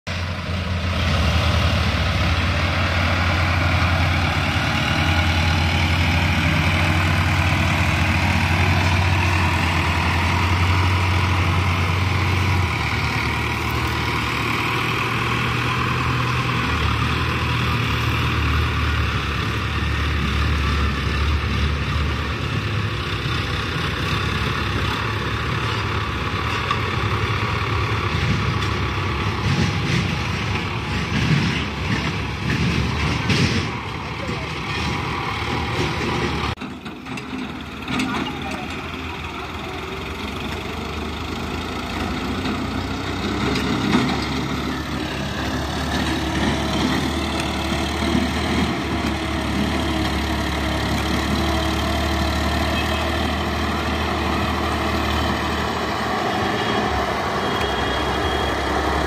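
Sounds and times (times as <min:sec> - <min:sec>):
tractor diesel engine: 0:00.0 - 0:59.0
excavator engine running: 0:00.1 - 0:59.0.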